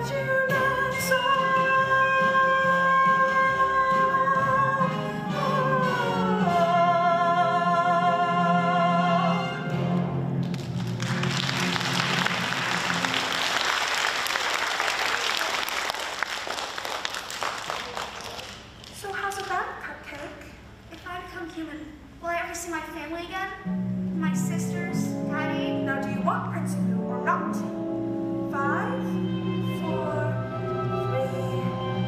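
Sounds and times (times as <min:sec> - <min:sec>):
audience applause: 0:10.4 - 0:19.0.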